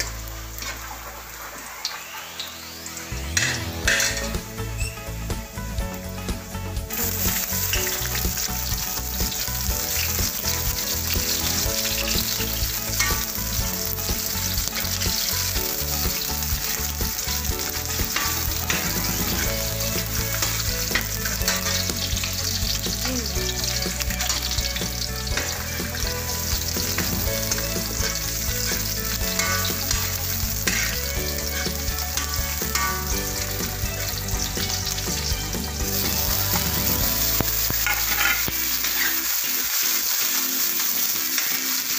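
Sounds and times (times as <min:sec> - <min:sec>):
garlic and onion sizzling in oil: 0:00.0 - 0:41.9
metal spoon scraping a pan: 0:06.9 - 0:35.3, 0:36.0 - 0:40.3.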